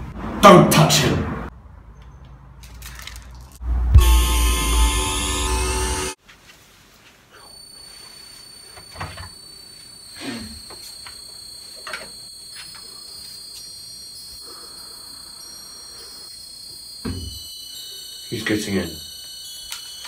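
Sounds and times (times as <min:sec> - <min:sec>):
eerie electronic drone: 0:03.6 - 0:06.2.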